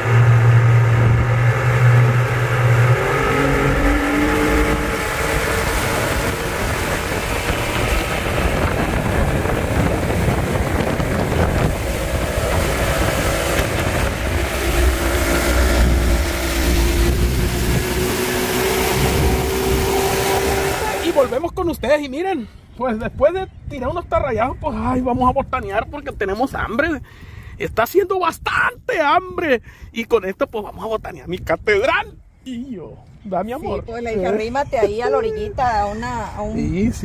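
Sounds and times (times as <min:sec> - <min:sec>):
boat wake splashing: 0:00.0 - 0:21.4
outboard motor running: 0:00.0 - 0:21.4.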